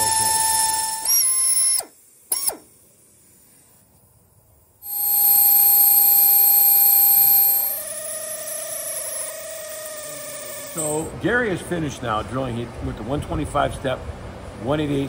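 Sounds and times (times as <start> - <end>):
drill whining: 0.0 - 2.7, 4.8 - 11.1.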